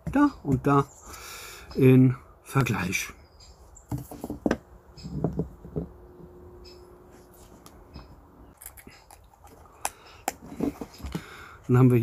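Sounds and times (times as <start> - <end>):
knife knocking on wooden table: 3.9 - 5.9.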